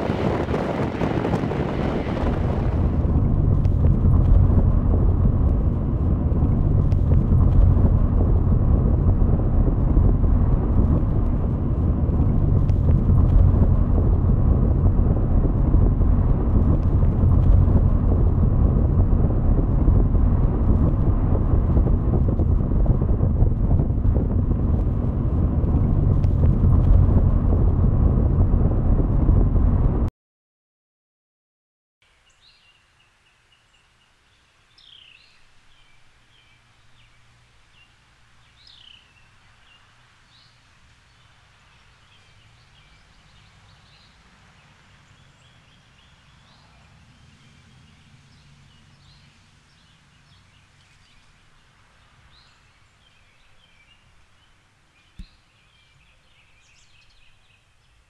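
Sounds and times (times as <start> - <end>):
distant traffic hum: 0.0 - 30.1
loud steady rumbling noise: 0.0 - 30.1
small birds chirping: 32.2 - 58.0.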